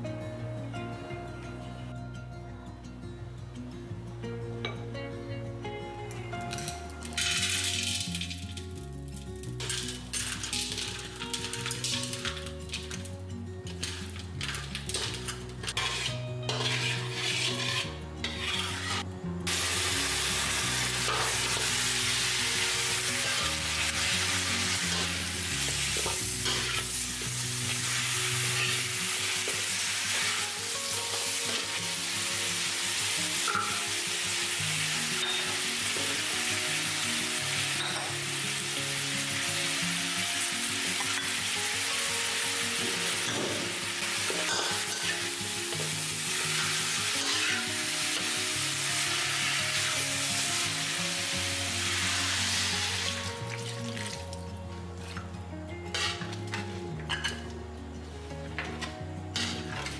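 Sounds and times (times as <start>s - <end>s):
metal spatula scraping in a wok: 13.7s - 31.7s, 43.1s - 50.6s, 55.9s - 56.3s, 59.4s - 59.9s
meat sizzling in sugar: 13.7s - 54.3s.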